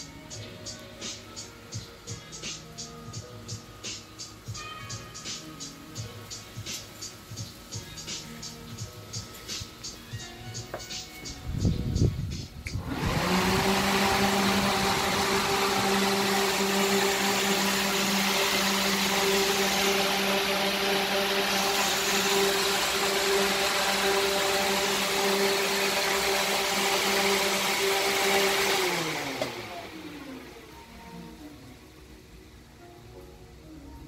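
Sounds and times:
electric cooling fan running: 0.0 - 34.0.

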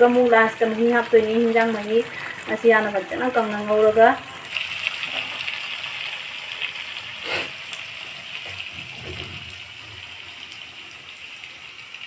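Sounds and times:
curry sizzling in a pan: 0.0 - 12.0
short scrape or knock: 7.2 - 7.5.

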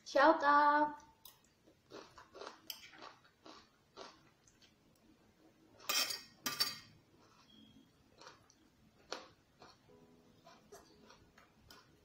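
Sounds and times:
person chewing food: 1.0 - 5.1, 6.9 - 12.0
metal spoon scraping ceramic plate: 5.8 - 6.9.

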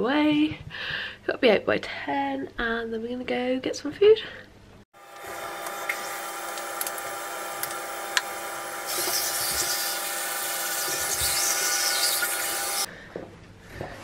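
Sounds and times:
electric toothbrush buzzing: 5.0 - 12.9.

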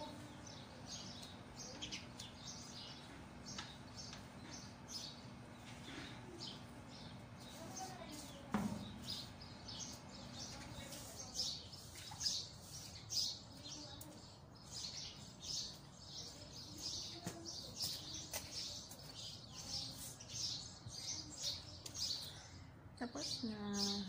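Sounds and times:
broom swishing on wet tiles: 7.4 - 9.4, 10.6 - 13.6, 17.8 - 20.3.

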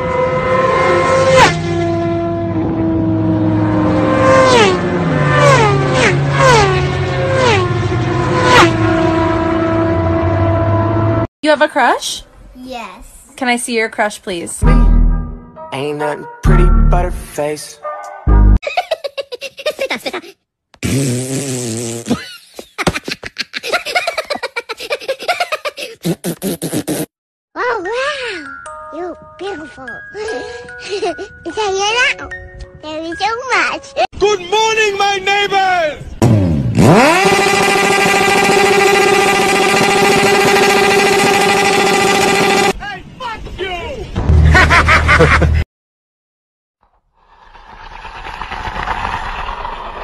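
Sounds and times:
motorcycle engine revving: 0.0 - 11.3, 36.2 - 42.8
person giggling: 18.6 - 20.4, 22.1 - 26.1, 30.8 - 31.3, 44.6 - 45.6.

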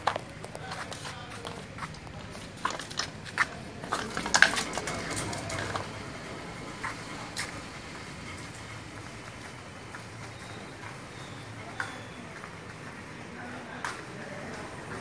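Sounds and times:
dog claws clicking on tiles: 1.9 - 6.0
can clattering on tiles: 4.0 - 5.9.

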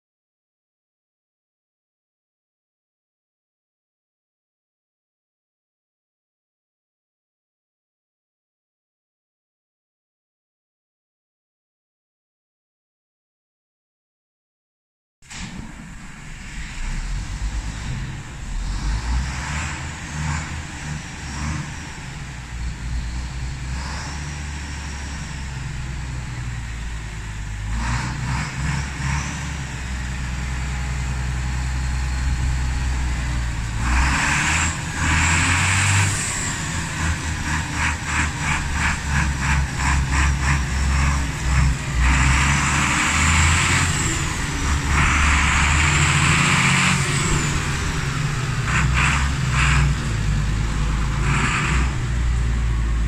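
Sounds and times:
tractor diesel engine revving: 15.4 - 53.0.

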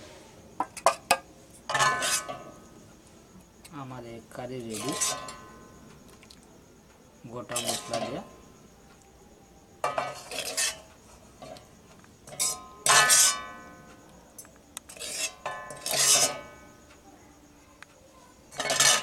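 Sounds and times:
metal ladle scraping and clinking: 1.7 - 2.5, 4.6 - 5.6, 9.8 - 11.6, 12.3 - 13.6, 14.9 - 16.6, 18.5 - 19.0.

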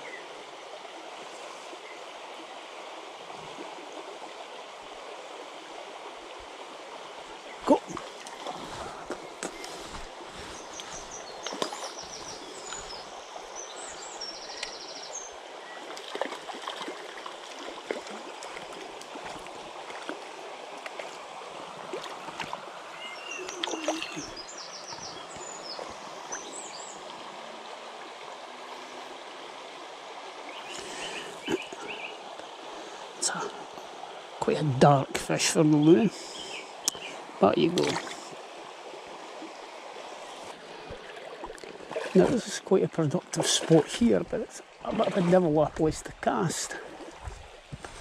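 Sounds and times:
stream flowing over stones: 0.0 - 48.0
small birds trilling and chirping: 7.3 - 17.1, 22.2 - 27.2, 30.4 - 33.9, 35.4 - 38.2
small splashes: 7.6 - 27.2, 36.9 - 38.4, 40.2 - 48.0.

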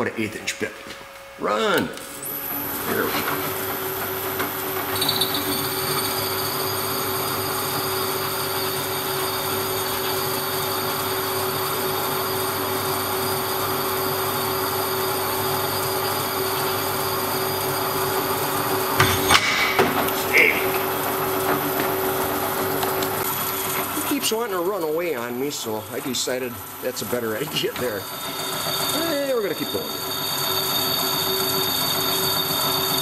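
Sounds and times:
drill press drilling metal: 2.2 - 33.0
high whine: 18.0 - 33.0.

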